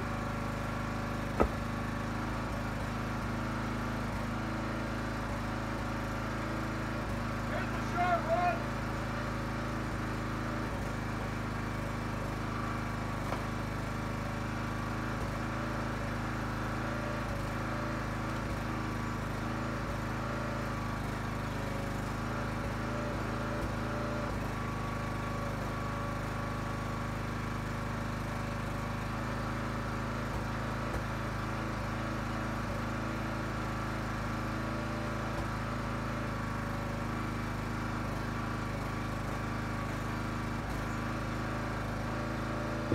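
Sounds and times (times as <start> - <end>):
log splitter engine running: 0.0 - 42.9
wood knocking and cracking: 1.3 - 1.6.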